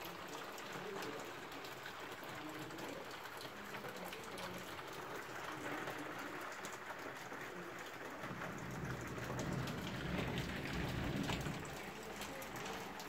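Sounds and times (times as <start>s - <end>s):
rain falling: 0.0s - 13.0s
low rumble: 8.2s - 11.9s.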